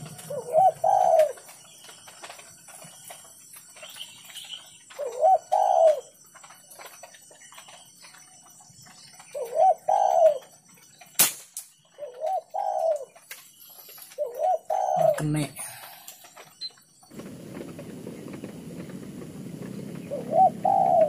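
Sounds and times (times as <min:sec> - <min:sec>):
dove cooing: 0:00.0 - 0:03.2, 0:03.9 - 0:07.0, 0:09.2 - 0:10.8, 0:11.9 - 0:13.3, 0:14.0 - 0:16.1, 0:17.1 - 0:21.0.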